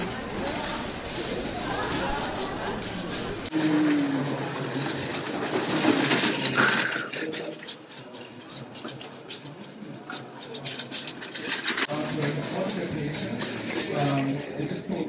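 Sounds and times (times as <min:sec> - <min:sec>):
roller coaster wheels rattling: 0:00.0 - 0:13.9.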